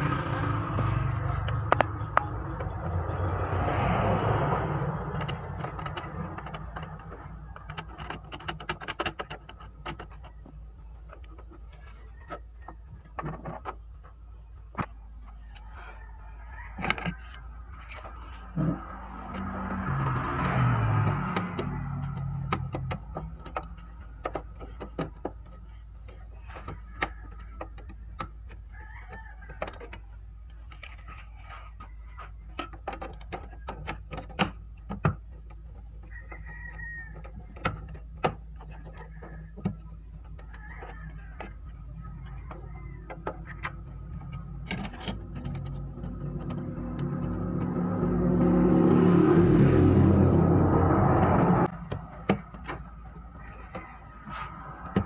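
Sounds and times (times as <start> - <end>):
plastic parts clicking: 4.8 - 15.8, 16.8 - 48.5.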